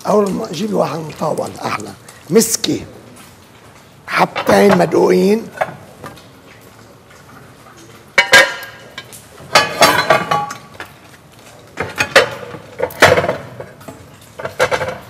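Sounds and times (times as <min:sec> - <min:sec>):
dishes and utensils clattering: 0:08.1 - 0:10.9, 0:11.6 - 0:15.0.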